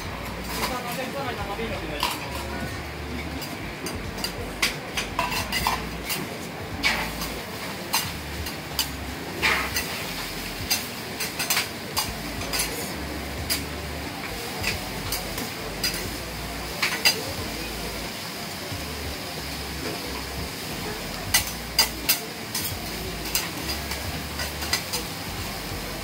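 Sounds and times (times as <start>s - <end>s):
hot plate sizzling: 0.0s - 26.0s
metal spatulas clinking on griddle: 0.3s - 1.2s, 2.0s - 13.7s, 14.3s - 16.1s, 16.7s - 17.8s, 21.3s - 25.5s.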